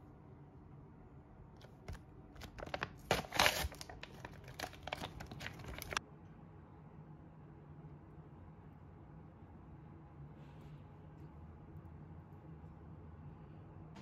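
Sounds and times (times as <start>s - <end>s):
packet tearing and crinkling: 2.4s - 6.0s.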